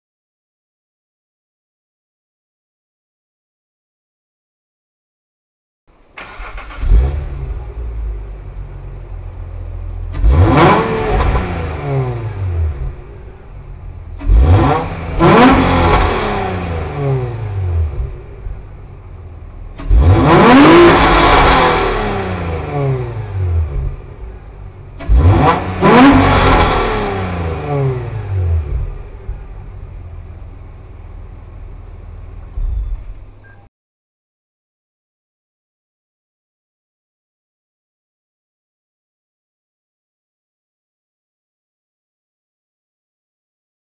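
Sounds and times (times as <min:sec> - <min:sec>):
car engine idling and revving: 0:06.0 - 0:33.6.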